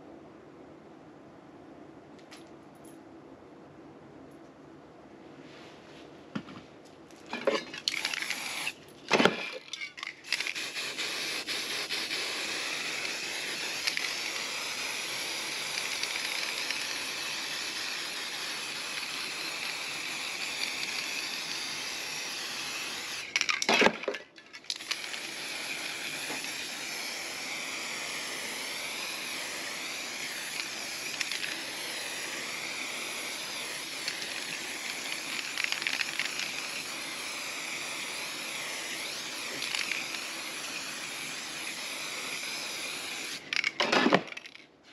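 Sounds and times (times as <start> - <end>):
aerosol spray can hissing: 7.4 - 9.6, 10.2 - 23.5, 24.7 - 43.7.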